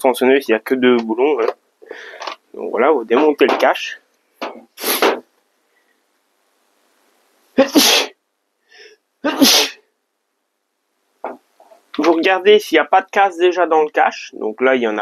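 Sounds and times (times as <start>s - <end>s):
man sneezing: 4.8s - 5.2s, 7.6s - 8.2s, 9.2s - 9.8s.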